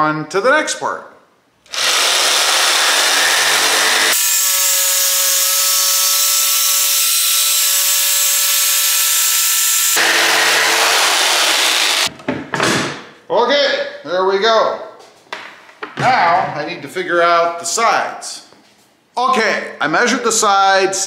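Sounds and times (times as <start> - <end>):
jigsaw cutting wood: 1.7 - 12.1.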